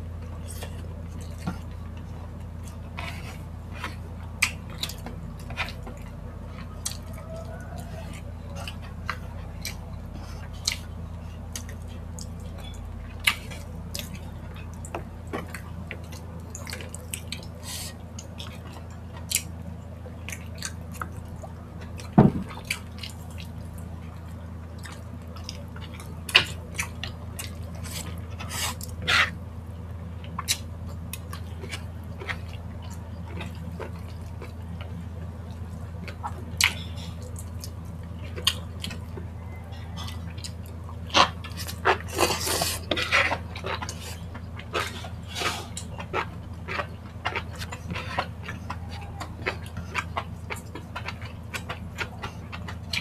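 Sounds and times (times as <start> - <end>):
steady low hum: 0.0 - 53.0
chewing clicks: 11.5 - 19.6, 30.2 - 53.0.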